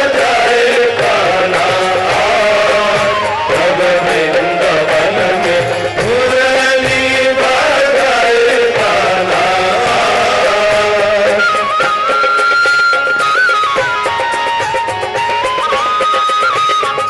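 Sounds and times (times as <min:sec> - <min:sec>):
person singing devotional song: 0:00.0 - 0:11.5
musical accompaniment: 0:00.0 - 0:17.0.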